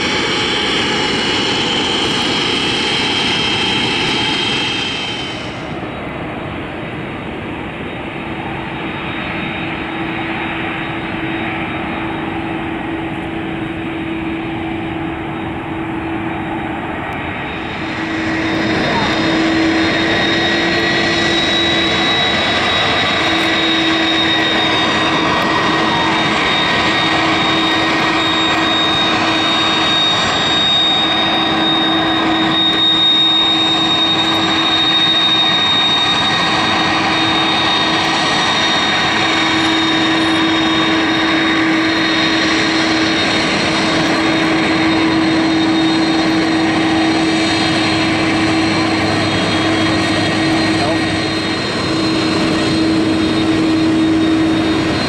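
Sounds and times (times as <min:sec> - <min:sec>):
jet engines whining at low power: 0:00.0 - 0:55.0.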